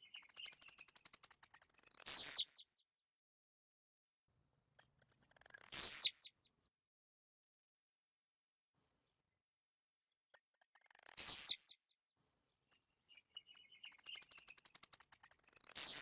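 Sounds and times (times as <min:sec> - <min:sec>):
bird singing ticks and sharp note: 0:00.0 - 0:02.7, 0:04.8 - 0:06.4, 0:10.3 - 0:11.9, 0:12.7 - 0:16.0.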